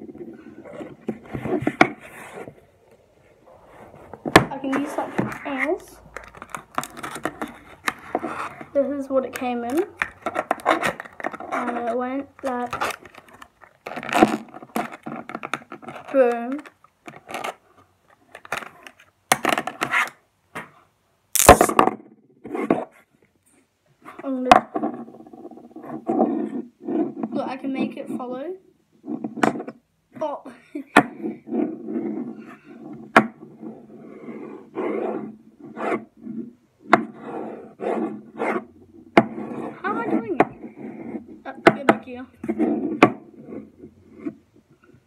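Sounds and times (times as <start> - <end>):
magnets snapping together: 21.4 - 21.7.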